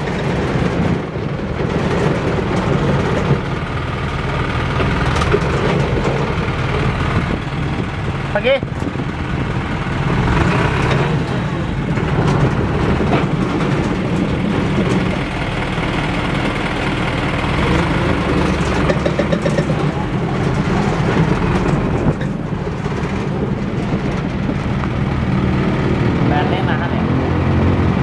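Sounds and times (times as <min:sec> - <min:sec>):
truck engine rumbling: 0:00.0 - 0:28.0.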